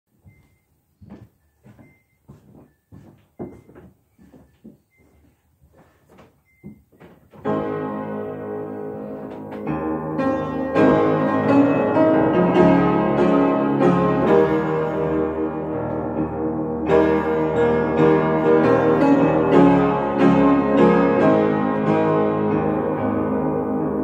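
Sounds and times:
piano playing chords: 7.4 - 24.0.

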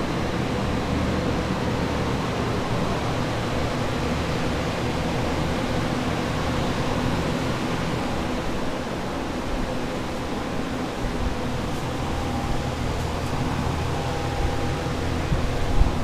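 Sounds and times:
low hum: 11.0 - 16.0.

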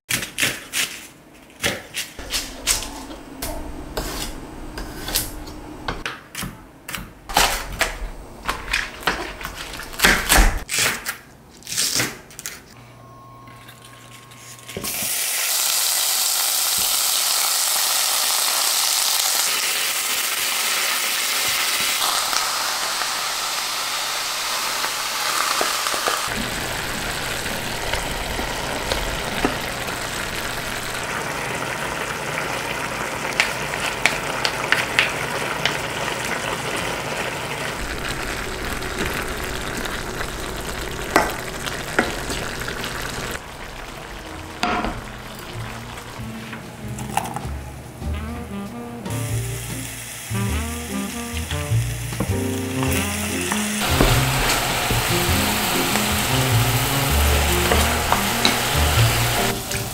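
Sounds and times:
food sizzling in a pan: 14.7 - 46.4, 49.1 - 59.9.

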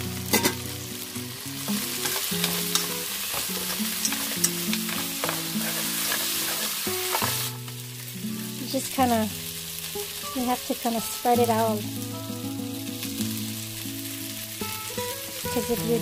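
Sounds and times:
meat sizzling in hot oil: 0.0 - 16.0
chopsticks clicking against pan: 2.0 - 7.3.

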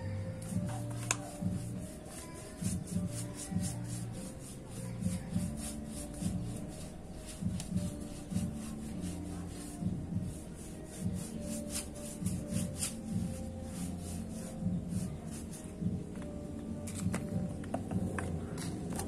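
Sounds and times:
paintbrush brushing over wood: 0.4 - 15.8.

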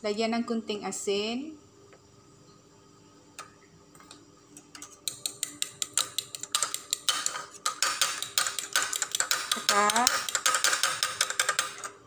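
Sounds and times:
fork clicking against bowl: 4.7 - 11.9.

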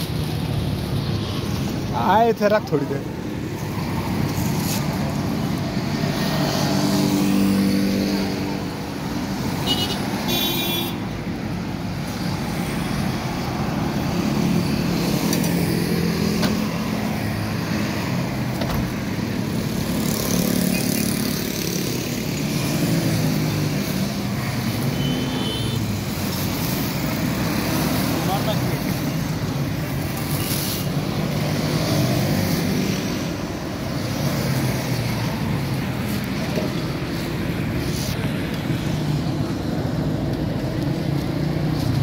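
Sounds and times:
road traffic passing: 0.0 - 42.0.

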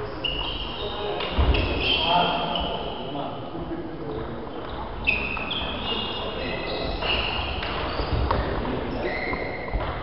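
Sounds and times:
brief high squeaks: 0.2 - 3.0, 5.0 - 8.3, 8.9 - 9.7.

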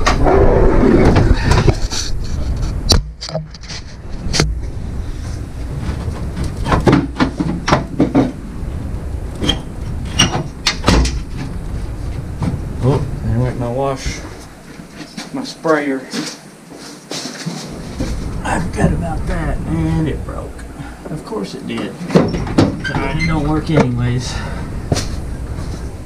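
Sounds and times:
scraping and rubbing: 0.9 - 8.4, 14.0 - 19.0, 24.9 - 26.0.

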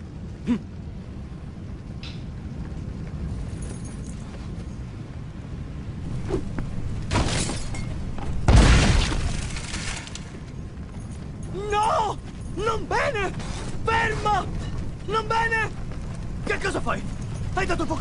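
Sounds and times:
fire flaring with deep boom: 0.0 - 3.6, 4.8 - 18.0
bonfire low rumble: 0.0 - 18.0.

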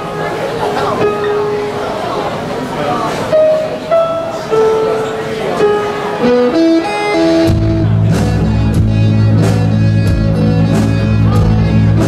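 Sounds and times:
electric guitar notes: 3.3 - 12.0
bass and drums beat: 7.3 - 12.0.

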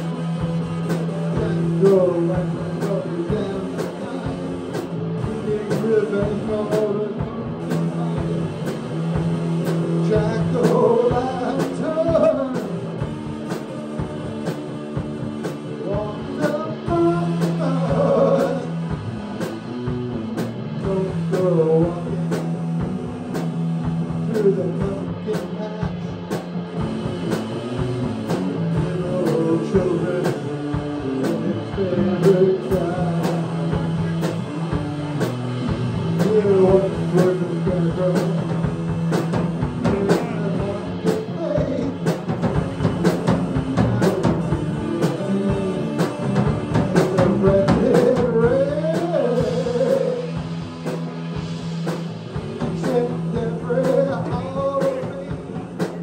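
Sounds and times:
man singing: 0.0 - 19.0, 20.7 - 23.5, 24.1 - 26.5, 28.2 - 35.4, 36.0 - 50.6, 52.4 - 56.0
bass guitar: 0.0 - 56.0
drum kit beat: 0.0 - 56.0
electric guitar: 0.0 - 56.0.

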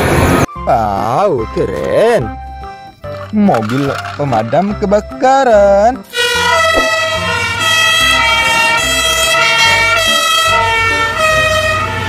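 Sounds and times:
truck engine rumbling: 2.3 - 10.8
fire engine two-tone siren: 6.2 - 12.0.

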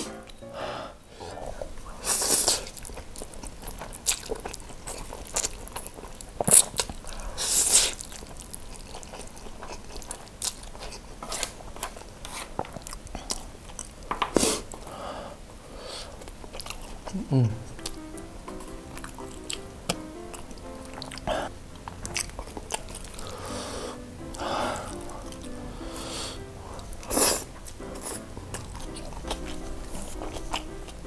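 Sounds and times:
loud wet noodle slurps: 2.0 - 2.8, 6.4 - 8.2, 25.9 - 28.2
smacking chewing clicks: 2.4 - 14.9, 16.2 - 25.7, 26.4 - 31.0.

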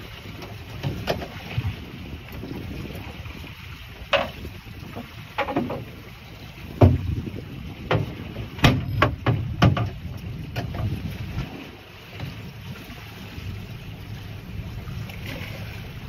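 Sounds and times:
water noise: 0.0 - 16.0
wind: 0.0 - 16.0
knocks against boat hull: 4.1 - 5.9, 6.8 - 11.0.

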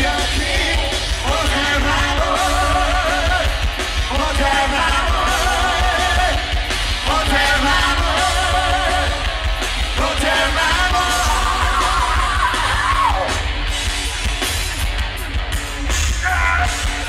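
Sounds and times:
live rock band: 0.0 - 17.0.

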